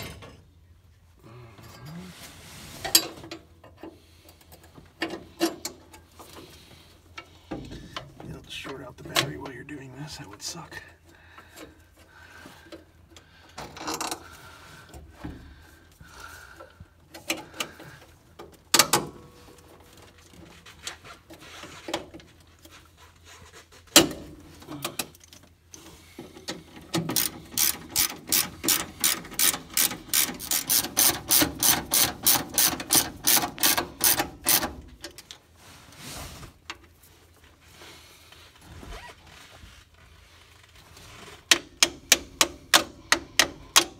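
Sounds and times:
ratchet wrench clicking: 27.1s - 34.7s.

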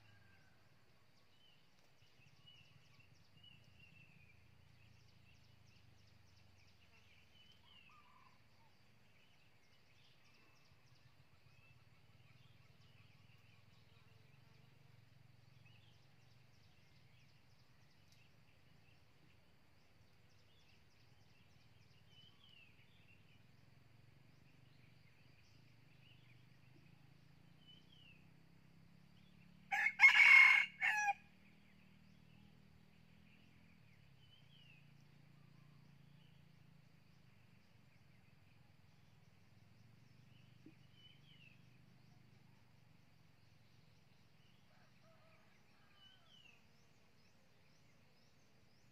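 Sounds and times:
rooster crowing: 29.7s - 31.3s.

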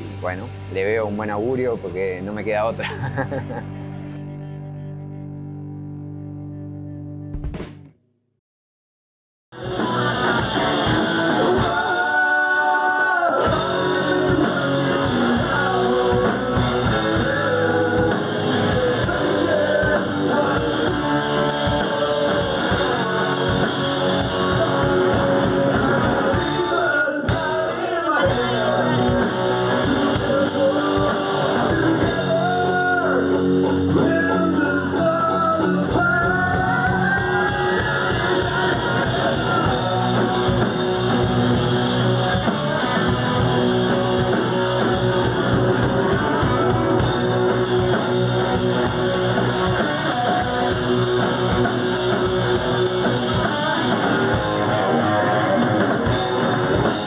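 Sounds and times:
rock band playing: 0.0s - 7.7s, 9.5s - 57.0s
person singing: 9.6s - 45.3s, 49.2s - 51.8s.

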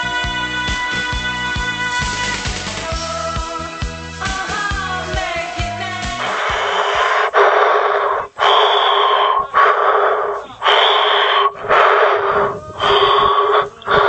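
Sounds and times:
breathing through a megaphone: 6.2s - 14.0s.

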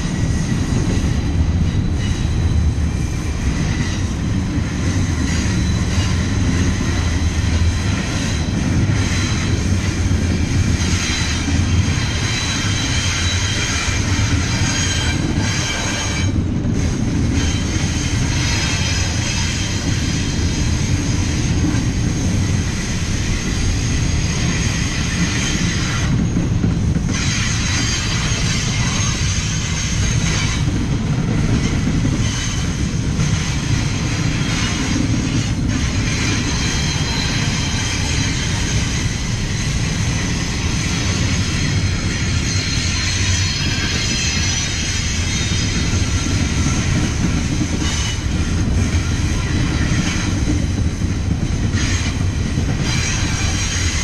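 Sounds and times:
train wheels rumbling on rails: 0.0s - 54.0s
wheels squealing against rails: 0.0s - 54.0s.

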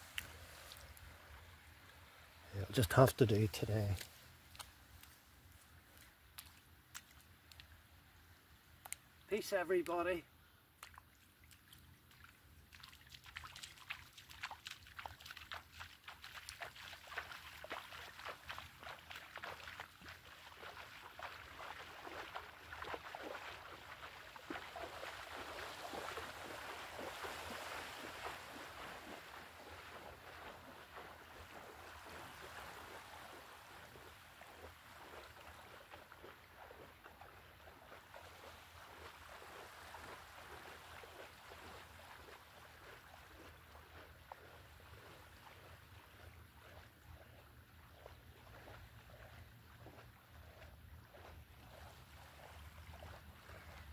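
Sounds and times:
water splashing from wading: 10.8s - 53.9s.

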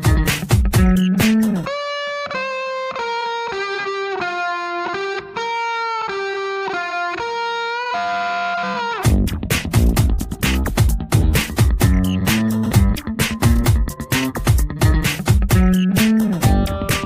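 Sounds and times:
drums: 0.0s - 1.7s, 9.0s - 17.0s
melody of held notes: 15.6s - 17.0s.

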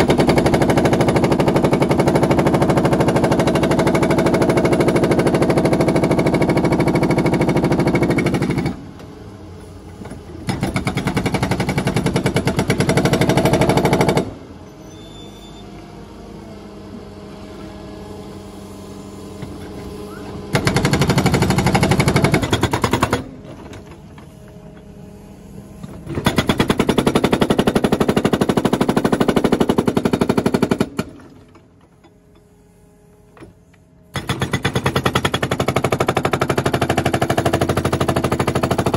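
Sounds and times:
hydraulic hammer pounding concrete: 0.0s - 9.0s, 10.0s - 14.4s, 19.4s - 24.2s, 25.8s - 32.1s, 33.4s - 38.9s
excavator engine running: 0.0s - 38.9s.

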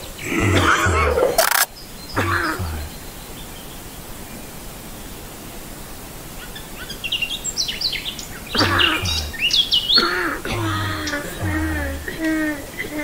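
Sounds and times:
bursts of noise with low hum: 0.0s - 3.1s, 8.5s - 13.0s
birds chirping: 0.0s - 13.0s
faint steady hiss: 0.0s - 13.0s.

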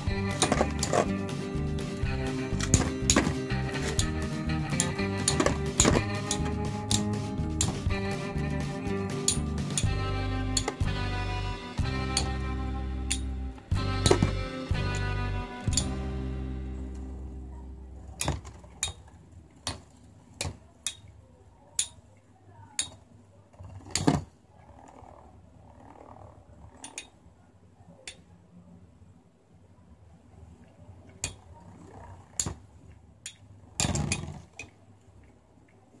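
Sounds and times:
spinning tops clashing: 0.0s - 11.0s.

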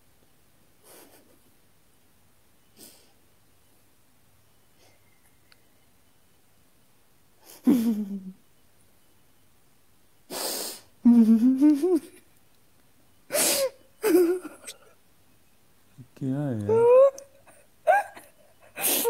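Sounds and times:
person hissing: 10.3s - 10.9s, 18.8s - 19.0s
person moaning: 16.6s - 17.2s
person crying out: 16.7s - 17.3s.

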